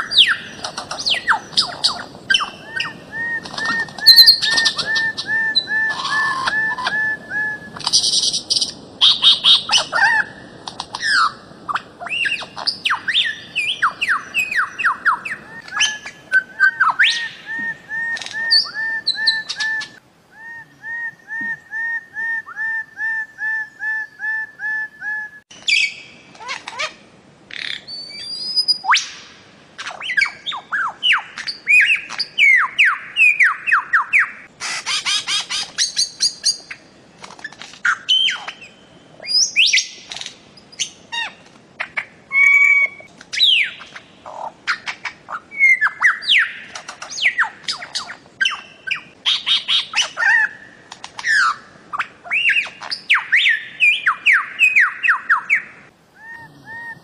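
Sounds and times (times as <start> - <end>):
bird whistled calls: 0.0 - 10.4, 11.0 - 26.1, 27.6 - 29.2, 40.7 - 50.6, 51.2 - 57.0
bird squawks: 0.0 - 27.9.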